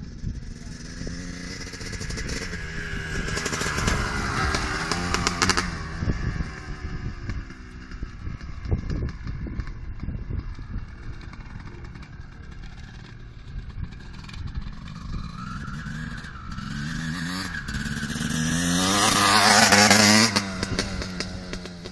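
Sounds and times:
dirt bike engine accelerating: 0:00.0 - 0:21.9.

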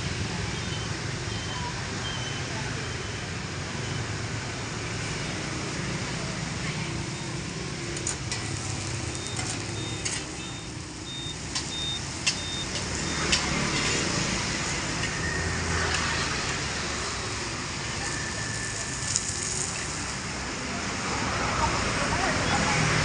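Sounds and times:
traffic hum: 0:00.0 - 0:23.0
metal utensils clinking on pans: 0:08.0 - 0:10.5.

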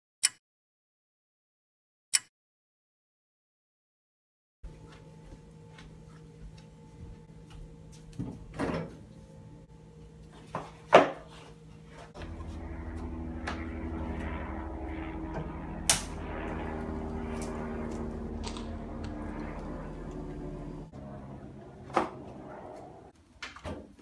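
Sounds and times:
steady low hum: 0:04.6 - 0:23.2.

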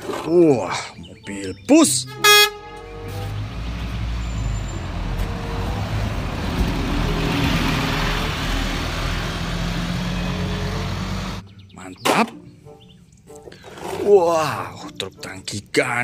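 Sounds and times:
road noise: 0:00.0 - 0:14.0
bus engine pulling away: 0:01.8 - 0:11.6.

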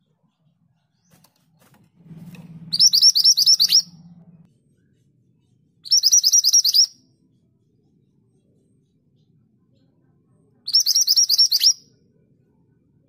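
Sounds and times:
bird singing trilled phrases: 0:02.6 - 0:04.3, 0:05.8 - 0:07.7, 0:10.6 - 0:12.0.

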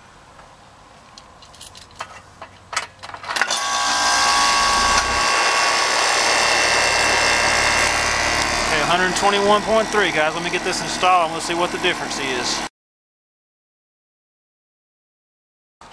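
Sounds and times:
heat pump humming and whining: 0:03.4 - 0:12.7.

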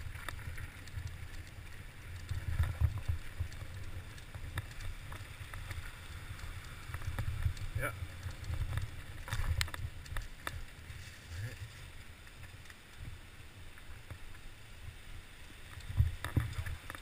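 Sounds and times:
mountain bike rumbling on dirt: 0:00.0 - 0:11.4.

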